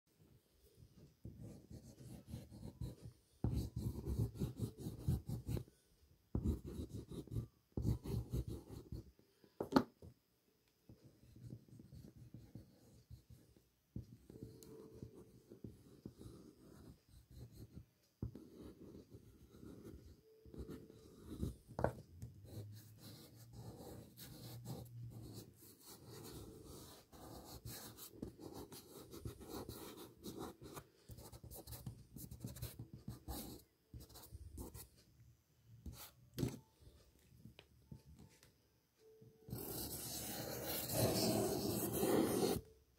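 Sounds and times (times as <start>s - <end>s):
fingertip rubbing pastel on paper: 39.5s - 42.6s
pastel scratching across paper: 39.5s - 42.6s.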